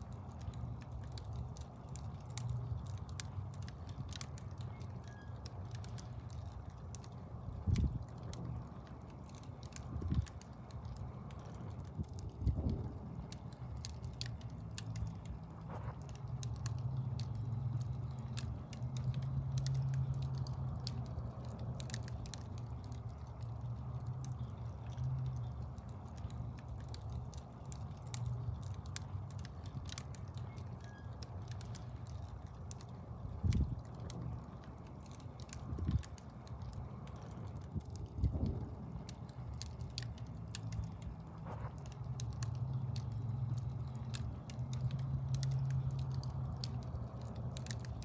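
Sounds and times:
logs crackling and popping: 0.0s - 48.0s
low rumble of flame: 0.0s - 48.0s.

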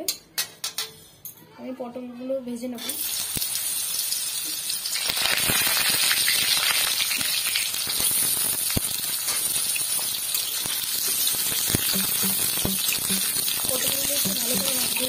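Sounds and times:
vegetables sizzling in oil: 2.8s - 15.0s
spatula tapping metal pan: 11.0s - 15.0s.

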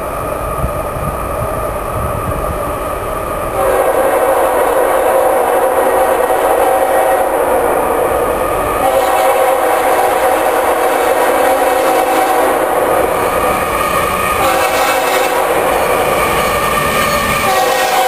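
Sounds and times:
train rumble: 0.0s - 18.0s
locomotive air horn blasts: 3.6s - 5.4s, 8.8s - 12.7s, 14.4s - 15.7s, 17.4s - 18.0s.

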